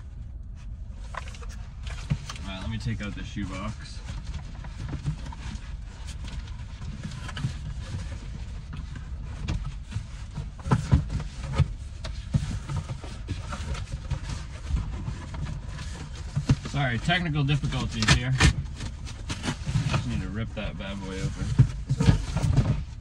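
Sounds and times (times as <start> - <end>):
cardboard rustling and scraping: 0.1 - 23.0.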